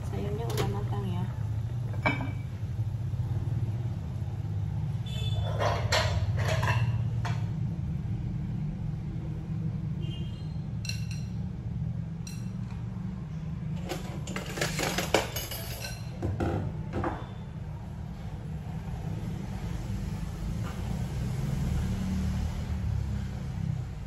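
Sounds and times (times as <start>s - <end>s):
plates and dishes clinking: 1.9s - 2.5s, 5.4s - 7.5s.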